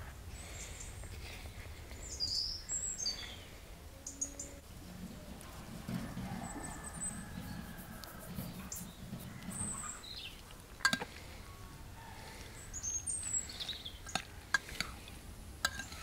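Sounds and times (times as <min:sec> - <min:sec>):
small birds chirping: 0:00.0 - 0:04.6, 0:05.2 - 0:16.0
spoon mixing salad in a bowl: 0:09.7 - 0:11.2, 0:14.0 - 0:16.0
spoon clicking against bowl: 0:15.6 - 0:16.0.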